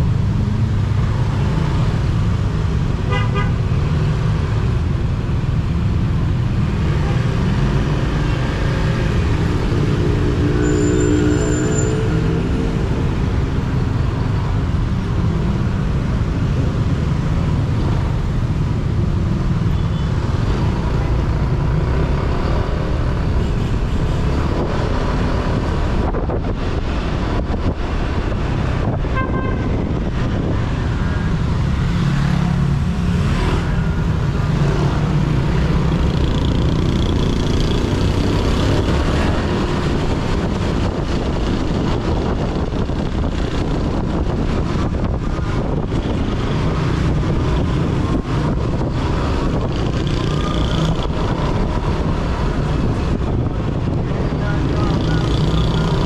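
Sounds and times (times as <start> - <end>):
road noise: 0.0 - 56.0
traffic: 0.0 - 56.0
wind on microphone: 23.1 - 31.7, 36.7 - 56.0.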